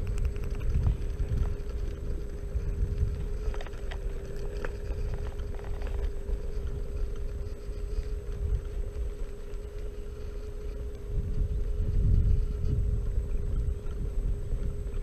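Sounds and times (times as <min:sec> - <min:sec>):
sharp clicks and rattles: 0:00.0 - 0:11.1
electric scooter motor whine: 0:00.0 - 0:15.0
low wind: 0:00.0 - 0:15.0.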